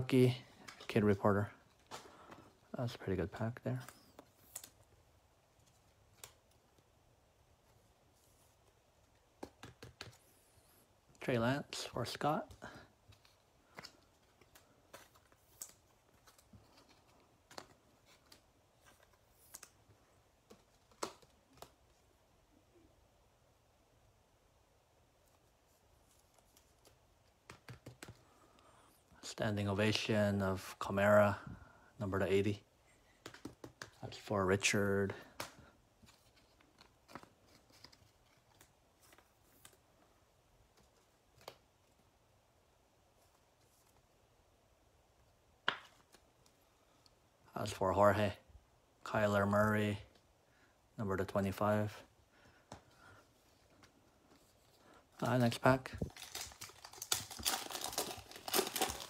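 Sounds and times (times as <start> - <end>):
trading cards clicking and rustling: 9.1 - 10.4, 11.8 - 21.9, 26.2 - 28.4, 33.2 - 34.3, 35.0 - 39.8, 53.6 - 59.0
trading cards clicking and tapping: 9.4 - 10.4, 26.8 - 28.2, 33.2 - 34.0.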